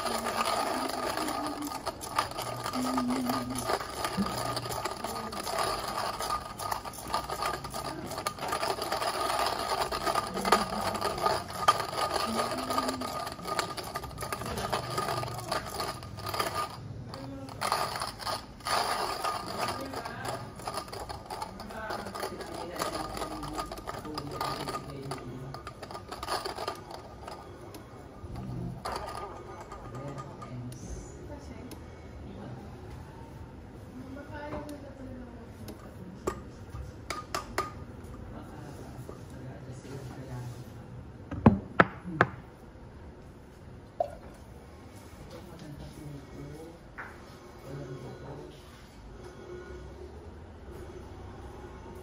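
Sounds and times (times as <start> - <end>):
hand coffee grinder cranking: 0.0 - 30.5.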